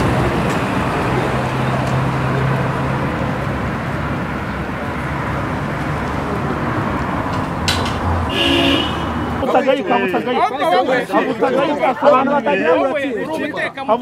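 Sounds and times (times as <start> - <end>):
vehicle engine hum: 0.0 - 9.5
road traffic noise: 0.0 - 14.0.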